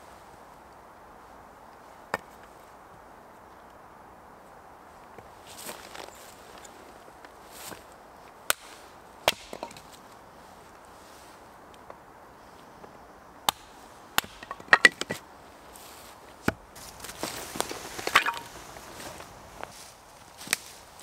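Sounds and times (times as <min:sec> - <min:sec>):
hatchet chopping wood: 0:08.5 - 0:09.9, 0:13.5 - 0:15.2, 0:16.4 - 0:16.6.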